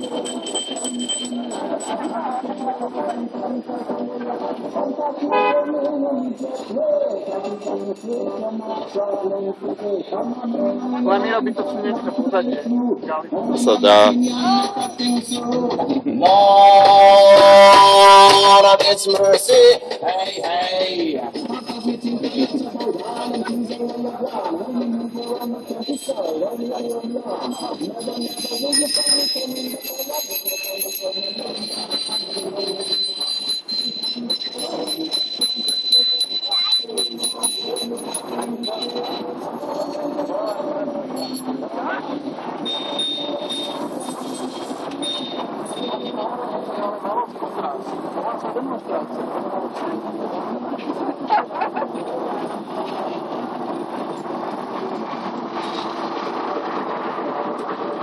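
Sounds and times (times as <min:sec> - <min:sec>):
bicycle bells ringing: 0:00.0 - 0:10.1, 0:13.5 - 0:15.8, 0:21.3 - 0:50.4
riders' voices: 0:00.0 - 0:58.0
street traffic noise: 0:00.0 - 0:58.0.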